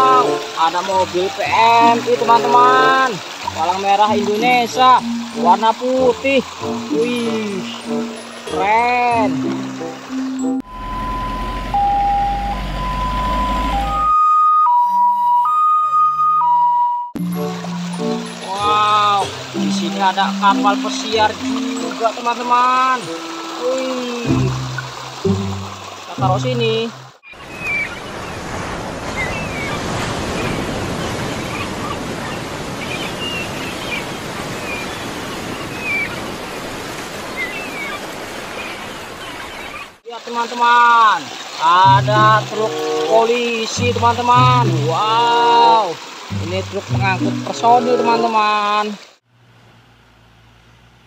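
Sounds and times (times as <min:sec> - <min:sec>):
sea surf: 0:00.0 - 0:14.1, 0:17.2 - 0:49.2
wind: 0:00.0 - 0:14.8, 0:17.2 - 0:51.0
ambulance two-tone siren: 0:10.6 - 0:17.2.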